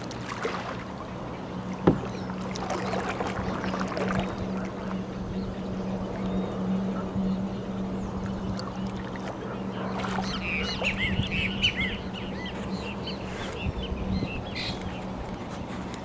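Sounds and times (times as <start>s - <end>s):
steady low hum: 0.0s - 16.0s
bird chirping: 9.6s - 15.1s.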